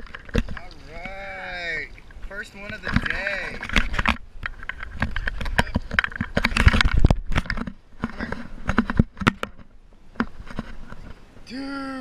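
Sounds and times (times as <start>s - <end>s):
sharp clicks and knocks: 2.6s - 11.2s.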